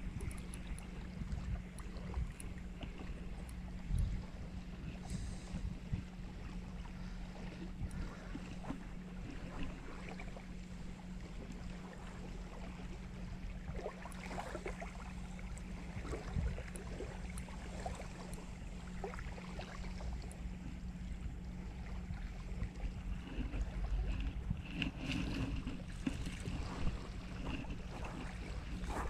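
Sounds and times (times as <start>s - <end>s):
wind rumble on microphone: 0.0s - 29.0s
waves lapping on pebbles: 13.7s - 20.3s, 22.0s - 29.0s.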